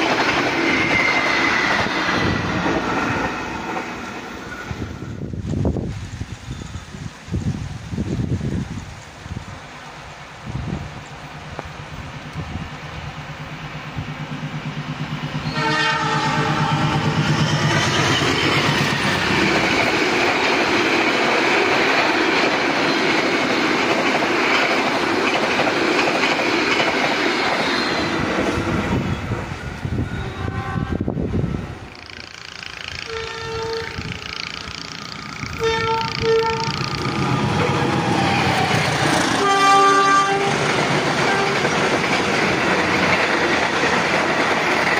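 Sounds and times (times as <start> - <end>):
train rumble and wheel clatter: 0.0 - 44.9
locomotive horn: 15.4 - 17.2, 30.0 - 31.2, 32.8 - 41.8.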